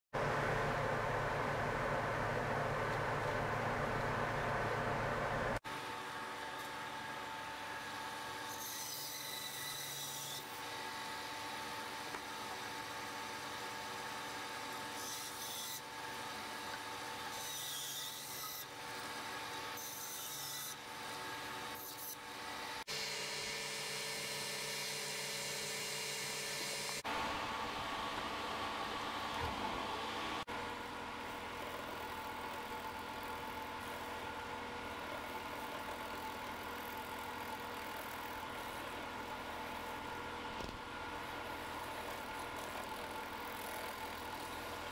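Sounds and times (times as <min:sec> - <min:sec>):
steady machine hum: 0:00.2 - 0:08.4, 0:22.3 - 0:43.5
wood lathe motor whine: 0:05.5 - 0:44.9.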